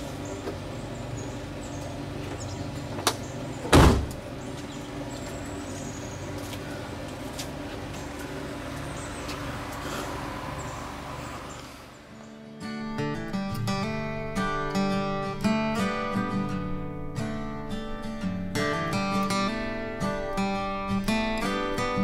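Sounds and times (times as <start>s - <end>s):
steady low hum: 0.0s - 21.9s
car hood slamming shut: 3.0s - 4.2s.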